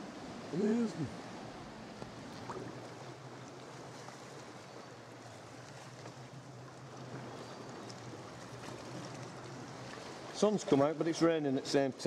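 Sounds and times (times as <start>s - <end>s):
water lapping around kayak: 0.0s - 12.0s
faint water drips: 1.9s - 10.8s.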